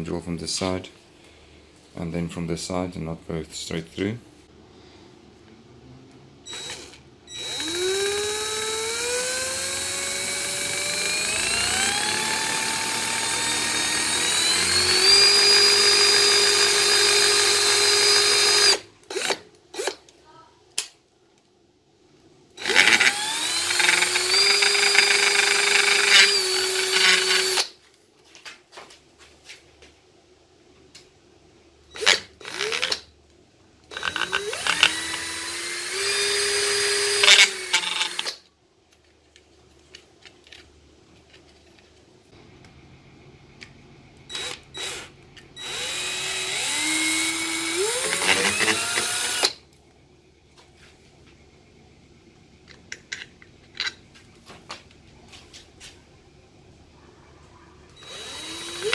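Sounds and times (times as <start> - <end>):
cordless drill boring through plastic: 6.5 - 20.0, 22.6 - 27.7, 32.0 - 33.0, 33.9 - 38.4, 44.3 - 49.6, 58.0 - 58.9
drill trigger blips: 6.5 - 20.0, 22.6 - 27.7, 44.3 - 49.6, 58.0 - 58.9.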